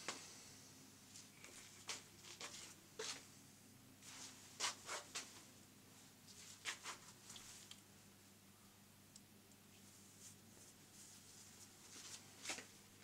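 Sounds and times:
jacket fabric rustling: 9.8s - 12.9s.

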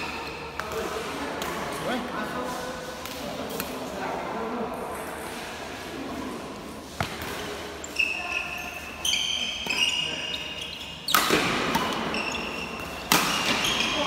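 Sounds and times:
rackets hitting shuttlecock: 6.9s - 7.8s, 9.2s - 14.0s
sneakers squeaking on court floor: 6.9s - 14.0s.

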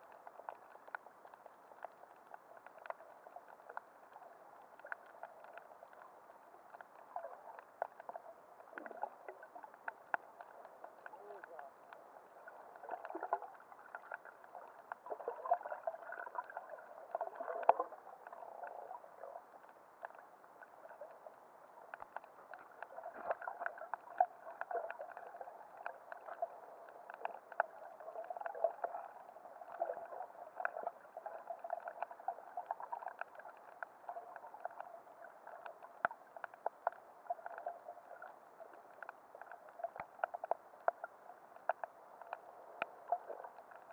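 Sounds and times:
small irregular clicks and crackles: 0.0s - 43.9s.

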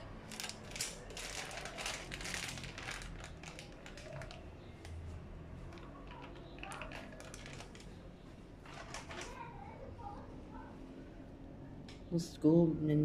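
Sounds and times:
utensils clicking and tapping: 0.0s - 5.0s
packaging rustling: 0.2s - 5.0s, 5.7s - 8.0s, 8.6s - 9.4s.

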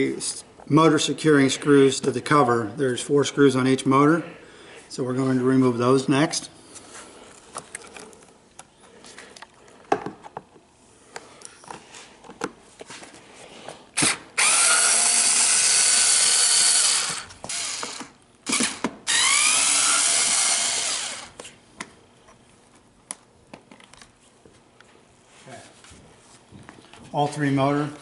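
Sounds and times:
cordless drill motor whining: 14.4s - 21.4s.

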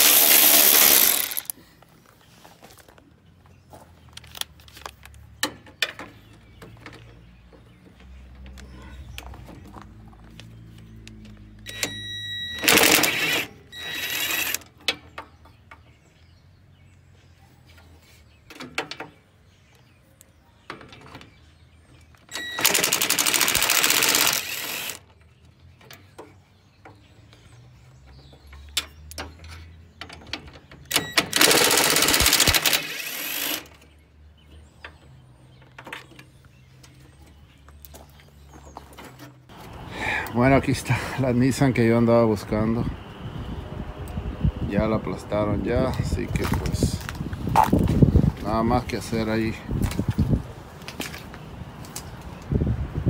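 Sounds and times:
cordless impact driver: 0.0s - 1.5s, 11.7s - 14.6s, 22.3s - 25.0s, 30.9s - 33.8s.

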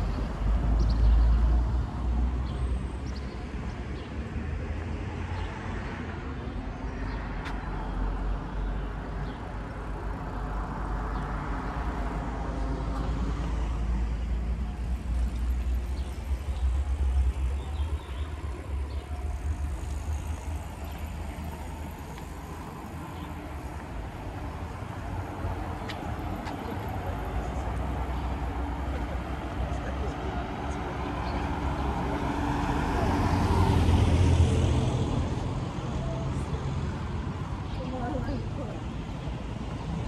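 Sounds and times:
vehicle engine rumbling: 8.2s - 38.8s.

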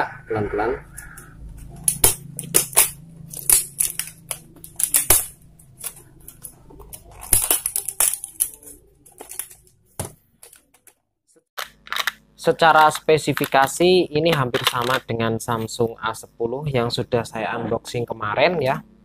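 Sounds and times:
wrapping crinkling: 1.8s - 9.8s.

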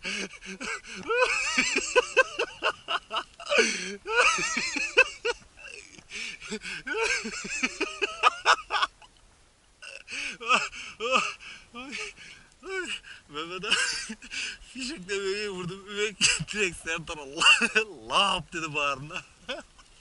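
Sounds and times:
person making wordless vocal sounds: 9.8s - 14.0s.

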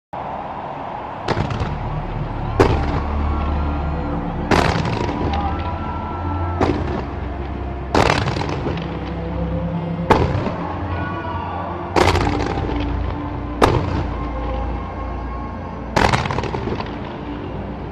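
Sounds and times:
background music: 0.2s - 17.9s
fireworks bangs with crackling: 1.3s - 2.0s, 2.6s - 3.1s, 4.5s - 5.4s, 6.6s - 7.2s, 8.0s - 8.9s, 12.0s - 13.0s, 13.6s - 14.1s, 16.0s - 17.1s.

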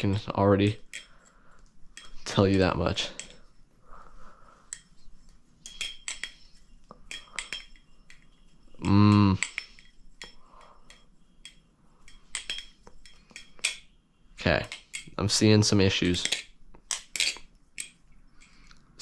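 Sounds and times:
knife handles clicking and clacking: 0.0s - 3.5s, 4.7s - 13.9s, 14.5s - 19.0s
person humming: 8.8s - 9.4s.

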